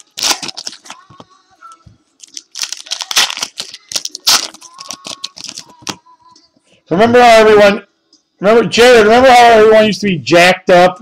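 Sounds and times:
card wrappers tearing and crinkling: 0:00.0 - 0:01.2, 0:02.2 - 0:06.0
cards being handled: 0:02.2 - 0:06.0.

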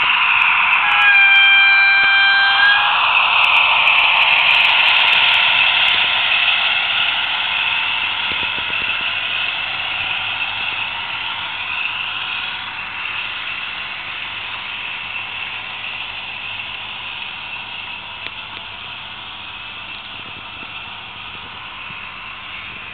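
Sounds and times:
model locomotive engine sound: 0:00.0 - 0:22.9
model wagon wheels rolling on track: 0:02.6 - 0:14.2.

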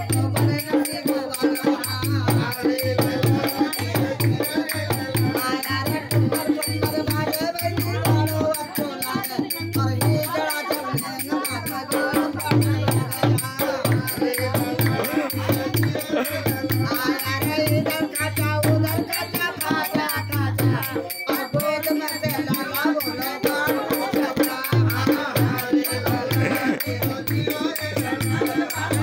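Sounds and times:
barrel drum beat: 0:00.0 - 0:29.0
person singing loudly: 0:21.8 - 0:29.0.

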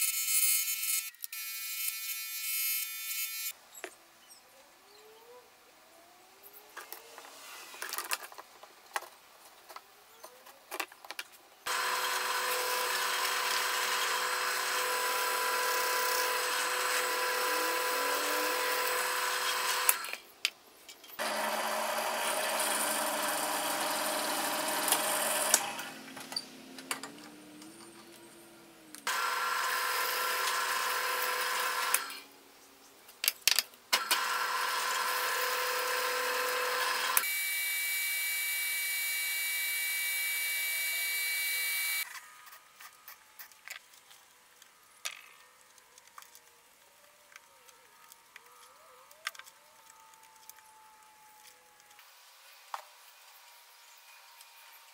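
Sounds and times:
disc sander whining: 0:11.7 - 0:20.2, 0:27.0 - 0:32.2, 0:34.0 - 0:43.6
drill press boring into wood: 0:11.7 - 0:20.2, 0:21.2 - 0:26.0, 0:29.1 - 0:32.2, 0:34.0 - 0:42.1.

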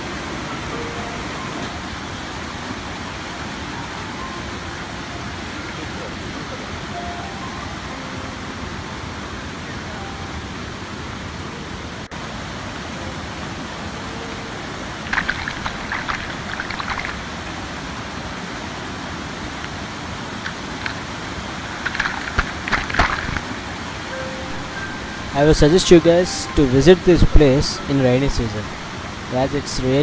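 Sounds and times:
water rushing down steps: 0:14.7 - 0:26.6
close water splashing: 0:14.8 - 0:18.1, 0:20.2 - 0:26.6.

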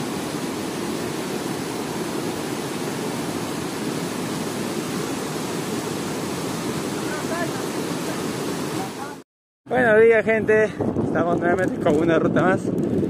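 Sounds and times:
river rushing over rocks: 0:00.0 - 0:09.2.

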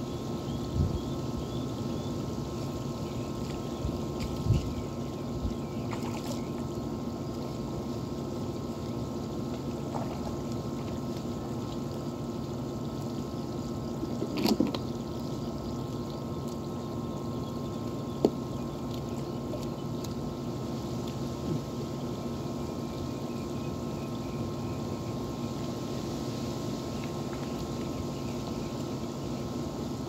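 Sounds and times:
low machine hum: 0:00.0 - 0:30.0
water splashing and trickling: 0:02.6 - 0:21.7.

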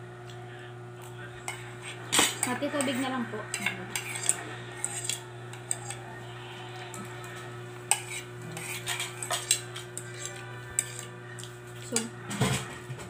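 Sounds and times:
steady low hum: 0:00.0 - 0:13.0
cutlery clinking on a plate: 0:01.5 - 0:06.0, 0:07.9 - 0:12.8.

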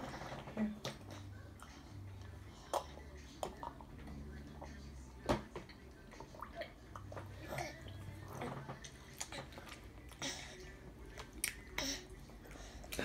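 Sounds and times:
toddler chewing: 0:05.7 - 0:13.0.

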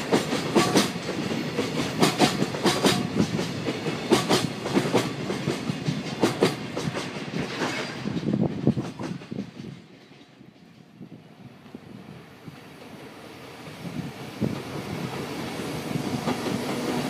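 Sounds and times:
train wheels clacking over rail joints: 0:00.0 - 0:11.0.

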